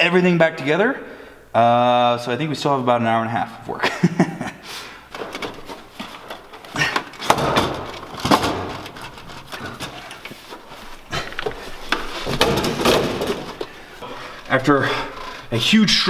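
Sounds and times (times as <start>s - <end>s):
hands knocking and scraping parts: 5.1s - 13.8s.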